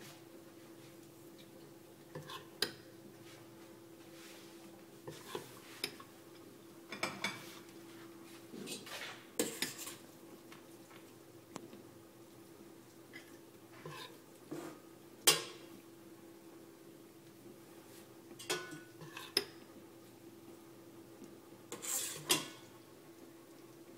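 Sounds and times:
metal spoon scraping a dish: 2.2s - 2.5s, 5.1s - 6.0s, 8.7s - 10.0s, 13.8s - 14.8s, 21.7s - 22.6s.

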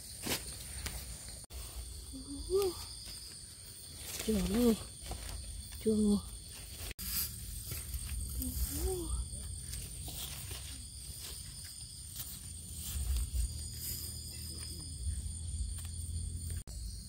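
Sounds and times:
insects droning: 0.0s - 17.0s
rustles and steps in undergrowth: 2.9s - 16.0s.

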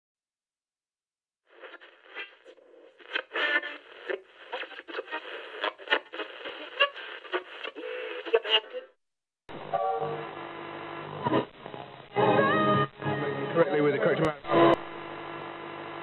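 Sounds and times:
crackling radio static: 1.4s - 16.0s
low radio tone: 9.5s - 16.0s.

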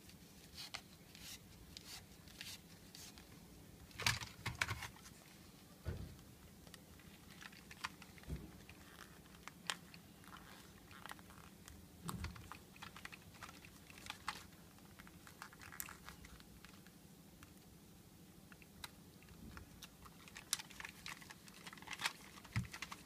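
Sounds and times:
clicks and rustles of headphone pad: 3.9s - 5.2s, 6.6s - 16.9s, 19.7s - 23.0s.

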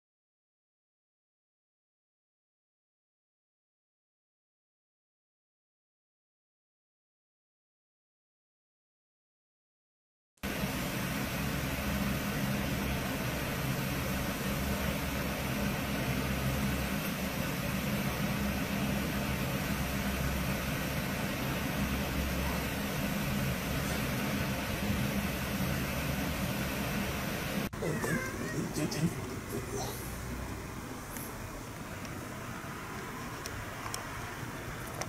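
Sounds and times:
steady hiss: 10.4s - 35.0s.

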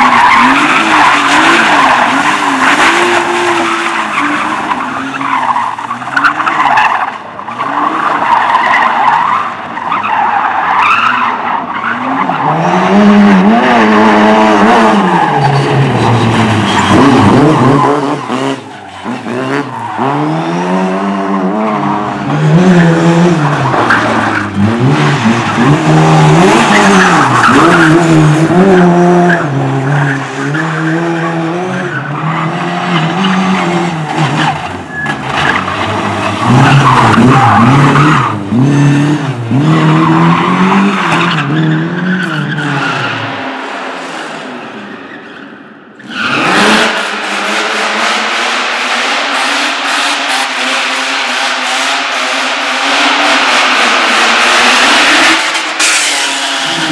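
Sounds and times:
car engines revving: 0.0s - 56.9s
tyres skidding on gritty surface: 13.7s - 20.6s.

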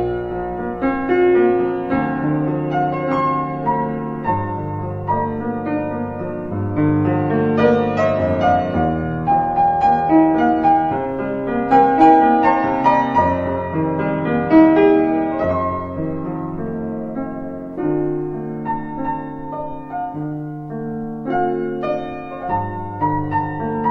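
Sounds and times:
gentle piano music: 0.0s - 23.9s.

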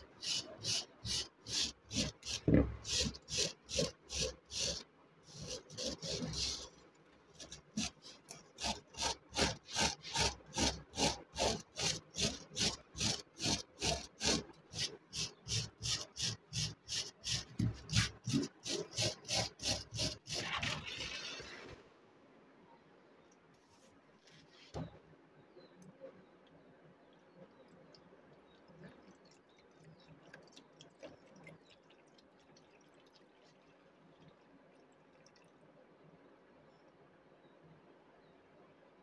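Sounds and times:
wire brush scrubbing rusty iron: 0.0s - 6.8s, 7.4s - 21.7s.

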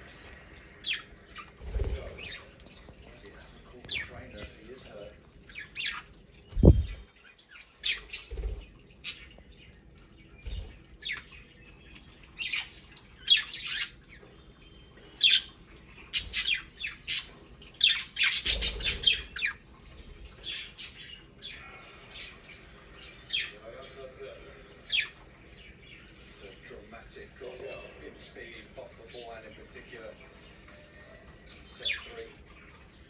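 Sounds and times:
budgerigars chirping: 0.8s - 19.7s, 23.0s - 27.8s.

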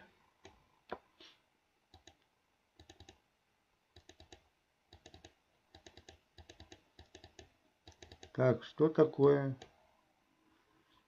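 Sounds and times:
typing on computer keyboard: 1.9s - 2.2s, 2.8s - 3.2s, 4.0s - 8.4s.

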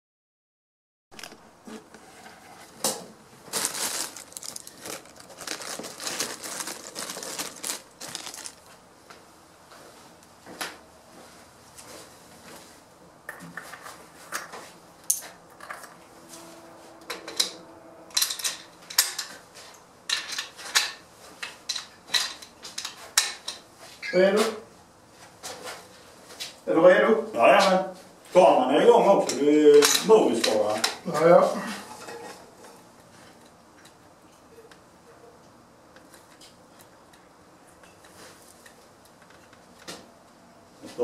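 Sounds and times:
crinkling and rustling: 1.2s - 8.8s.

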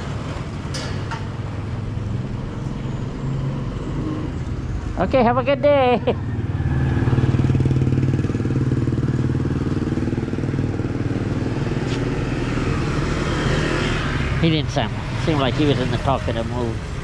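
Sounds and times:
motorcycle engine running: 7.1s - 13.0s.

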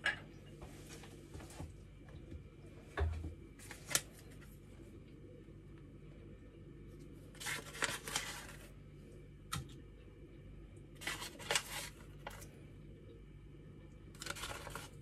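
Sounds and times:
plastic bag crinkling: 7.3s - 8.7s, 11.0s - 12.5s, 14.2s - 15.0s.

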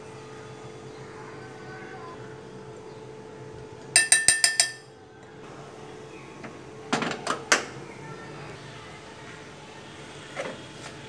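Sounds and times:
spoon clinking against metal pot: 4.0s - 4.9s.

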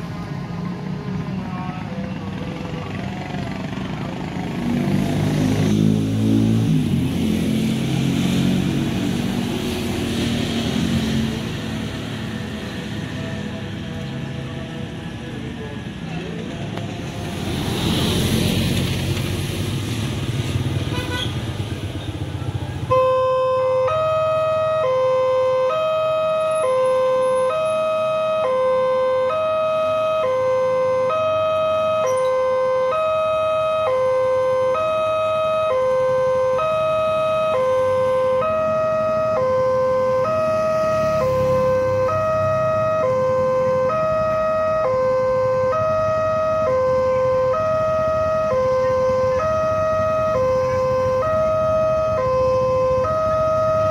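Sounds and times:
motorcycles passing: 0.6s - 23.0s
level crossing two-tone alarm: 22.9s - 53.9s.

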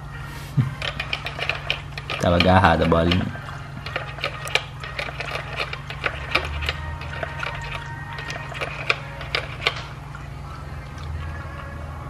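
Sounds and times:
steady low hum: 0.0s - 12.0s
dog licking water bottle spout: 0.8s - 10.0s.

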